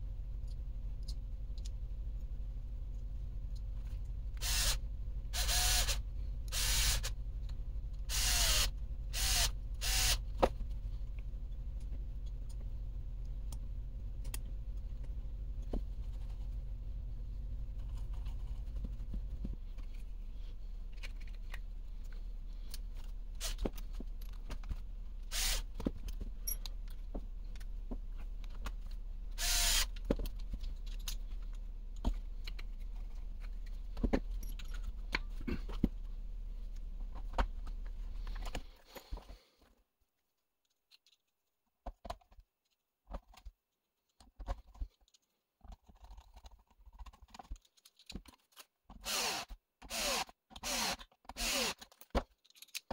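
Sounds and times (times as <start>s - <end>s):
steady low hum: 0.0s - 39.3s
plastic gears clicking and knocking: 20.9s - 36.0s, 43.1s - 52.9s.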